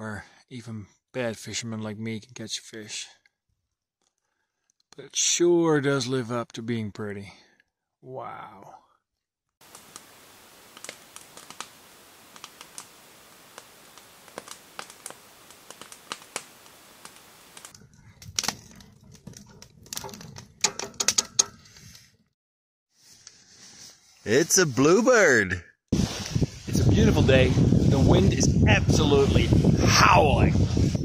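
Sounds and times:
campfire crackling and popping: 0:09.6 - 0:21.8, 0:25.9 - 0:29.7
low rumble of burning wood: 0:09.6 - 0:22.0, 0:26.0 - 0:31.0.

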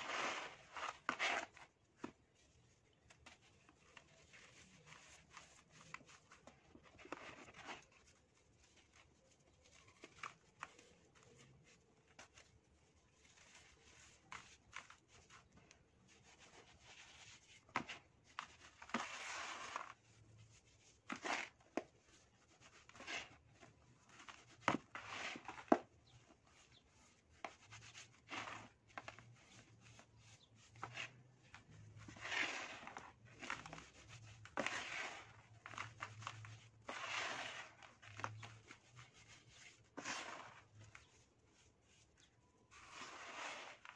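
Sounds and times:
sand pouring into plastic tub: 0:00.0 - 0:01.4, 0:36.8 - 0:37.9, 0:40.0 - 0:40.7, 0:42.7 - 0:43.9
hands rubbing sand: 0:32.0 - 0:43.9.

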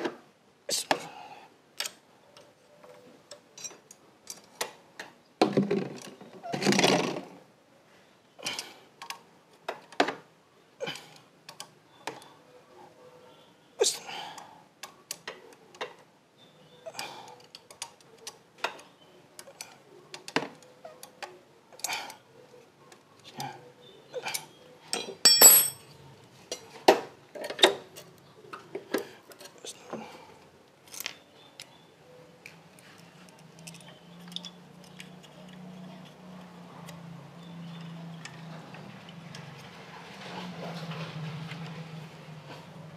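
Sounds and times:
metal tools clinking and knocking: 0:24.9 - 0:25.9.

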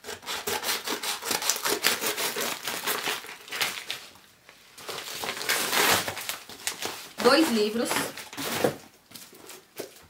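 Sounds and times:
packaging crinkling and rustling: 0:01.4 - 0:10.0.

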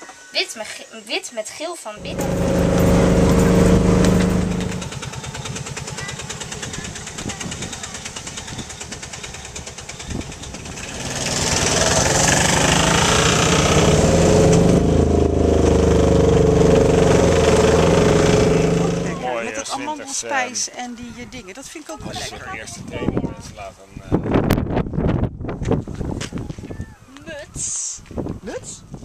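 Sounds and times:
motor rickshaw engine puttering: 0:02.0 - 0:19.9.

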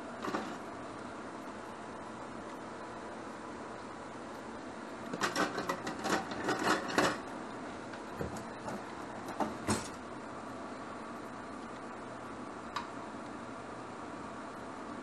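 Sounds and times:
kitchen utensils clattering: 0:05.2 - 0:07.2.

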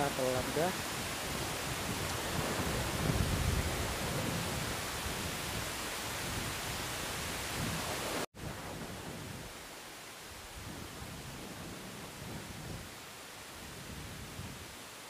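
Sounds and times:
waves washing against concrete: 0:00.0 - 0:08.9
wind on microphone: 0:00.0 - 0:15.0.

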